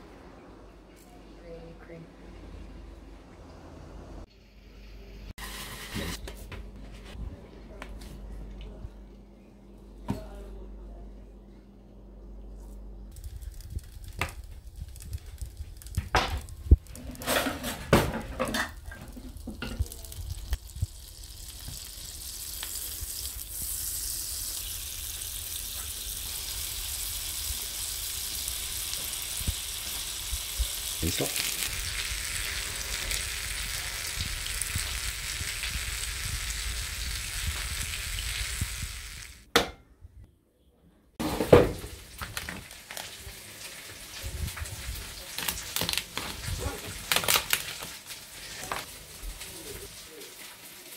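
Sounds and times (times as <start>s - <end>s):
butter sizzling in a frying pan: 13.1s - 17.0s, 18.2s - 39.5s, 42.0s - 50.9s.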